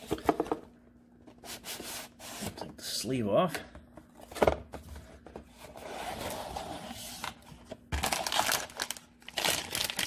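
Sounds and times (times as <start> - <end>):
cardboard scraping: 5.1 - 8.5
plastic bag crinkling: 8.0 - 10.0.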